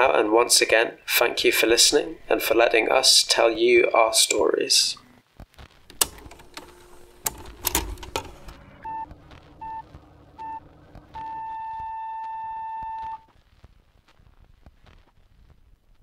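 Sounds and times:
sharp clicks: 5.9 - 8.6
electronic beeps: 8.6 - 13.3.

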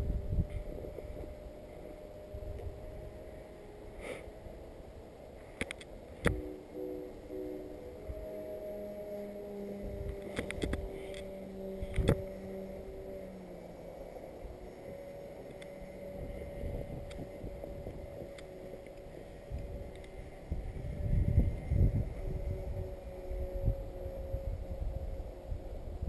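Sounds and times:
distant rc plane motors humming: 0.0 - 26.0
wind rumble on microphone: 0.0 - 26.0.

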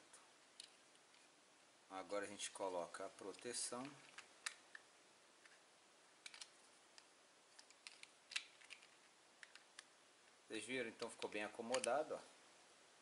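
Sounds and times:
plastic clicks and taps: 11.0 - 12.0.

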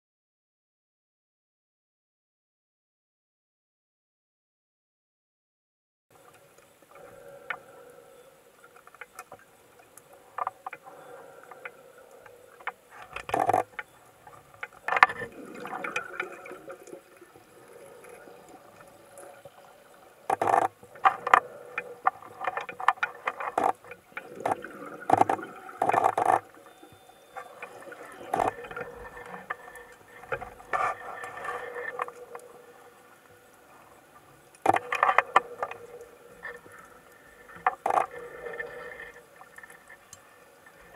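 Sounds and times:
faint steady hum: 6.2 - 40.9
small ticks: 6.2 - 40.9
underwater rushing noise: 6.2 - 40.9.

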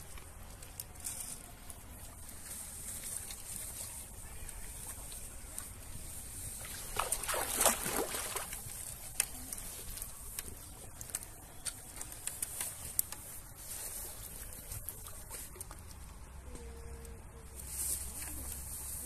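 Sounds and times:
water splashing from landing net: 2.4 - 10.8.

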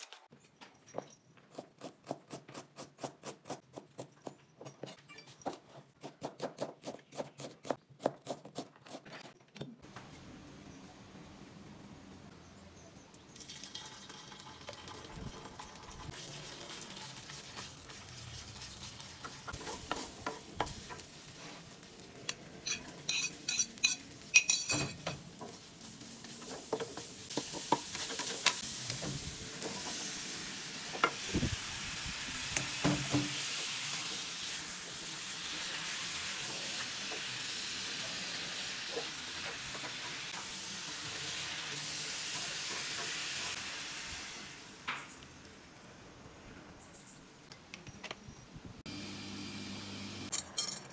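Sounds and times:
oil sizzling in a wok: 13.5 - 45.5
spatula scraping a pan: 22.6 - 28.6.

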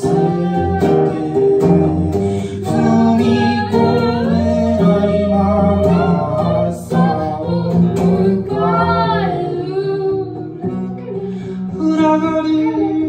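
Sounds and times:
woman singing: 0.0 - 1.5, 2.6 - 13.0
acoustic guitar: 0.0 - 13.0
man singing: 0.0 - 13.0.

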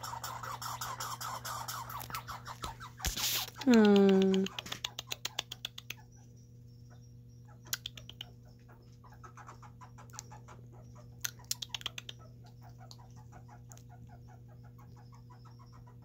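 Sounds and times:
soft chewing ticks: 3.4 - 6.3, 7.6 - 8.7, 9.3 - 10.5, 11.2 - 14.2.

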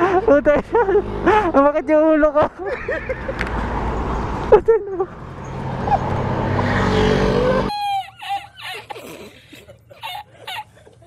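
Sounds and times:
motor scooter engine: 2.8 - 8.2.

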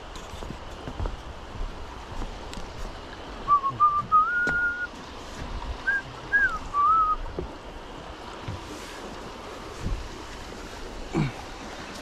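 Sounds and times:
water noise: 0.0 - 12.0
wind: 0.0 - 12.0
person whistling a tune: 3.5 - 4.9, 5.8 - 7.2.

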